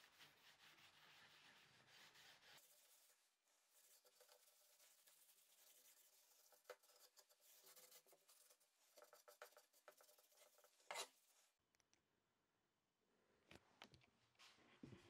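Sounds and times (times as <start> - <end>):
cloth rubbing on wood: 0.0 - 6.6.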